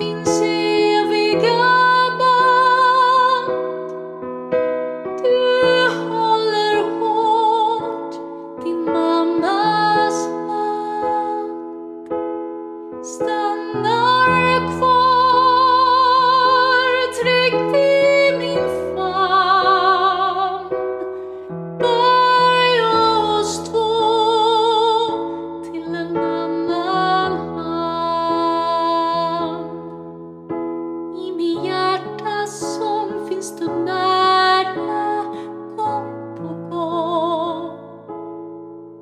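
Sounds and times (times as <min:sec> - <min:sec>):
woman singing with vibrato: 0:00.0 - 0:03.5, 0:05.2 - 0:11.6, 0:13.1 - 0:20.8, 0:21.8 - 0:29.7
piano: 0:00.0 - 0:39.0.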